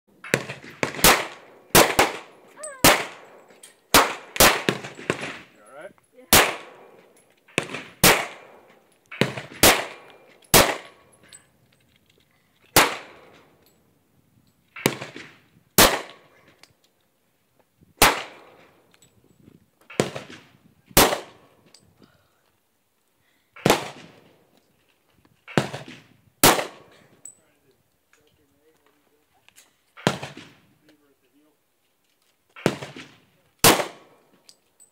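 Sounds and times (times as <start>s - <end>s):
pistol shots: 0.2s - 5.5s, 6.3s - 7.0s, 7.6s - 11.0s, 12.8s - 13.4s, 14.8s - 16.3s, 18.0s - 18.7s, 19.9s - 21.5s, 23.6s - 24.2s, 25.5s - 27.0s, 30.0s - 30.7s, 32.6s - 34.2s.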